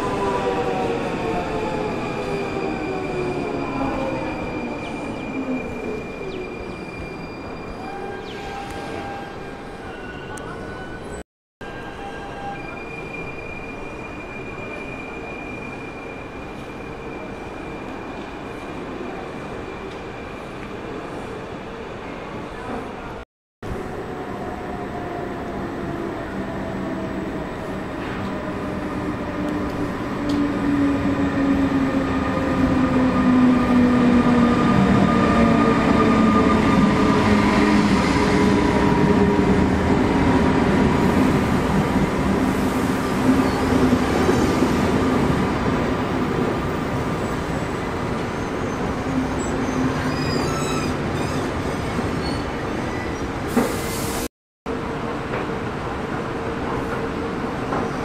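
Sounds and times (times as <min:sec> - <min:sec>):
train wheel squeals: 0:01.2 - 0:18.3, 0:42.6 - 0:44.6, 0:47.2 - 0:54.2.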